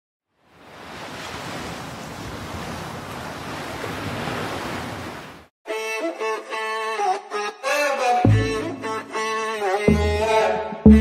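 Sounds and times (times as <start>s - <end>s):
ocean waves washing: 0.4s - 5.5s
music: 5.7s - 11.0s.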